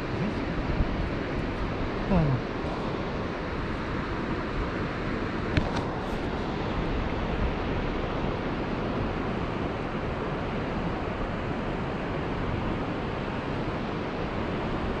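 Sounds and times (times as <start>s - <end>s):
wind buffeting microphone: 0.0s - 6.2s
river water rushing through weir: 0.0s - 15.0s.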